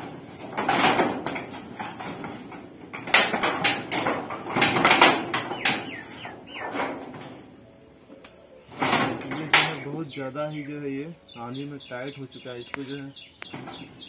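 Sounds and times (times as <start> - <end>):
metal roof sheets rattling: 0.0 - 7.7, 8.6 - 10.8, 13.5 - 14.0.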